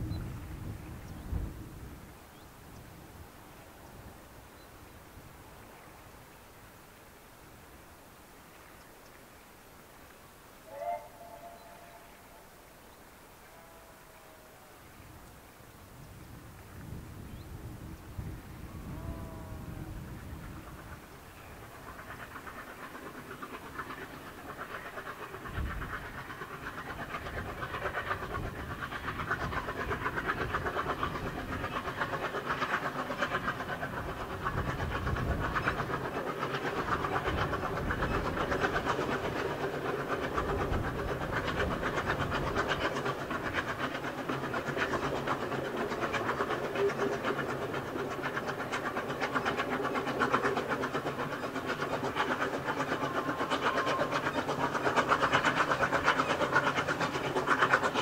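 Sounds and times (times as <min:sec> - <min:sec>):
steam locomotive exhaust beating: 0:10.6 - 0:12.7, 0:16.0 - 0:58.0.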